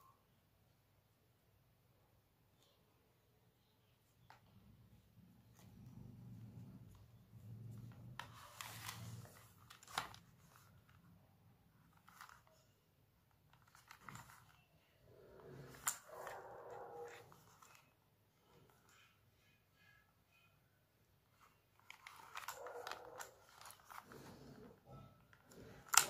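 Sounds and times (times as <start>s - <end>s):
soft rustling of headset cable: 5.4s - 19.0s, 21.3s - 26.0s.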